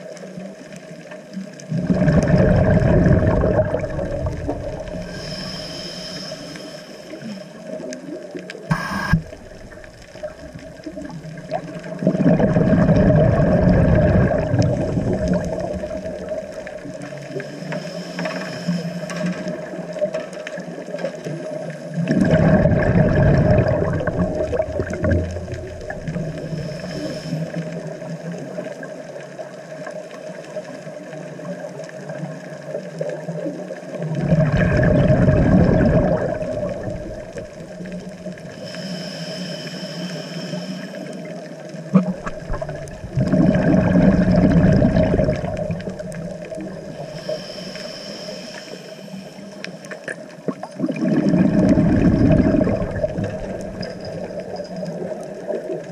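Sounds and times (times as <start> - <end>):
bubbling exhalation underwater: 1.7 - 5.6, 8.6 - 17.2, 22.0 - 26.6, 34.0 - 38.2, 41.9 - 47.0, 50.1 - 55.2
regulator hissing inhalation: 4.9 - 7.7, 8.7 - 9.3, 17.3 - 19.4, 26.2 - 27.8, 38.5 - 41.3, 46.8 - 50.0.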